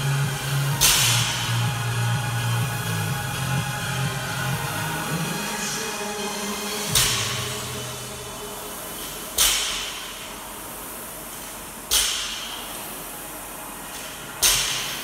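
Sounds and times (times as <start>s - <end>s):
barbell dropped on gym floor: 0.8s - 1.5s.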